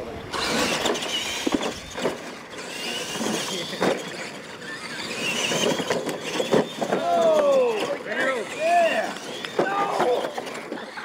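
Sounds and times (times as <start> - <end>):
toy truck motor whine: 0.0 - 11.0
trucks landing thumps: 0.4 - 7.9.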